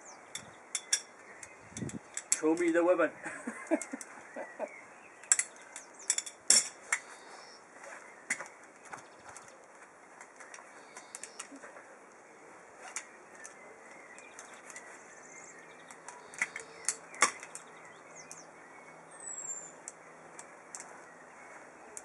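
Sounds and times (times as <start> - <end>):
metal hardware clinking: 0.3 - 2.8, 5.2 - 6.8.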